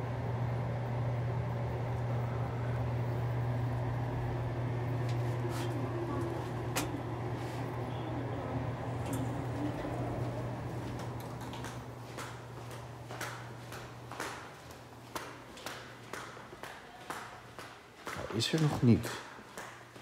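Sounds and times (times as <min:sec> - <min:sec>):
lift humming: 0:00.0 - 0:15.0
lift doors sliding open: 0:04.9 - 0:12.0.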